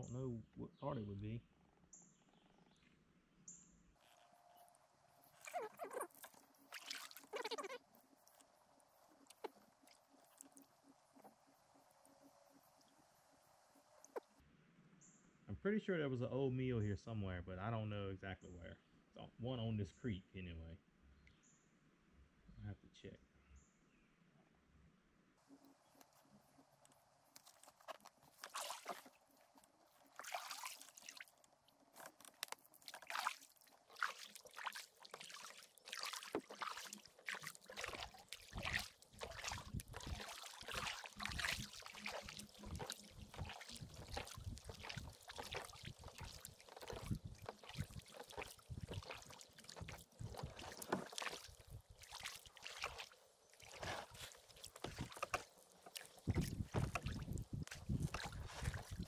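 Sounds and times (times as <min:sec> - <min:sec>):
water drips and small splashes: 0:05.1 - 0:14.4, 0:25.4 - 0:59.0
kayak paddle dipping into water: 0:05.2 - 0:08.5, 0:25.5 - 0:59.0.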